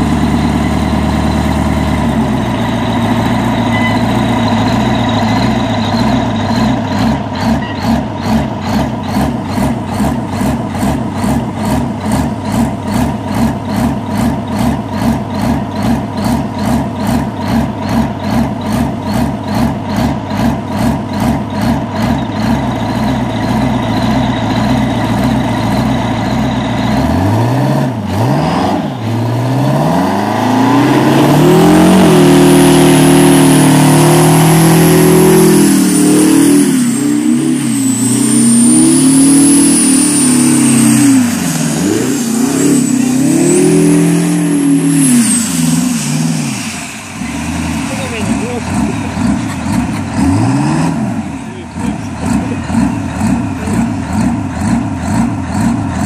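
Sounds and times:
truck engine idling and revving: 0:00.0 - 0:56.0.

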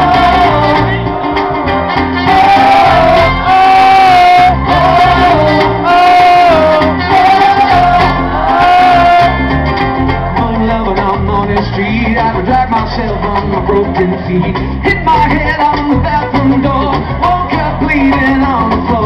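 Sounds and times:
trumpet melody: 0:00.0 - 0:10.9
live band playing: 0:00.0 - 0:19.0.

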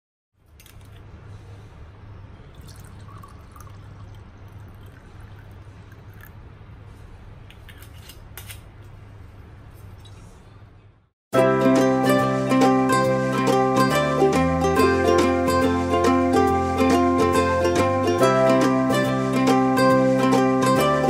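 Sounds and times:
wine pouring into glass: 0:02.5 - 0:06.3.

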